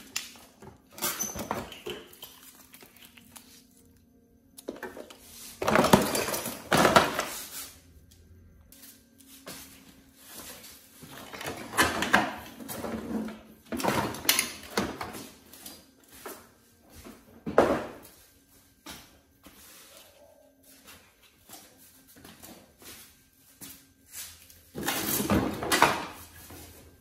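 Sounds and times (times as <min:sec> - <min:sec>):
metal parts clattering into tray: 0:05.6 - 0:07.4.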